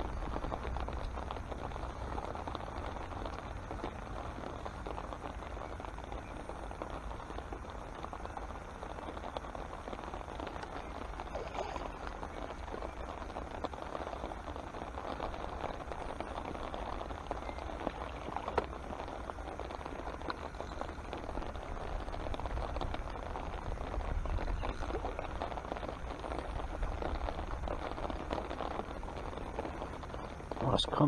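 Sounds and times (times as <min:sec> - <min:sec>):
low rumble: 0:00.0 - 0:31.0
rain pattering on pond: 0:00.0 - 0:31.0.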